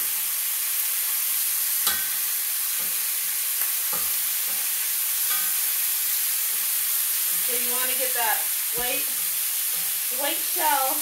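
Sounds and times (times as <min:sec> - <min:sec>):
chicken sizzling in a skillet: 0:00.0 - 0:11.0
metal tongs clicking on pan: 0:01.8 - 0:05.7.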